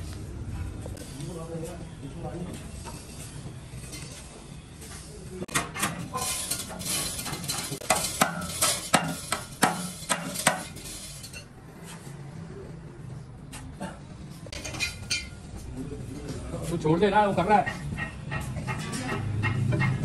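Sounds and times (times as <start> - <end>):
metal clinking and clanking: 5.5 - 11.5, 14.5 - 15.5, 17.6 - 20.0.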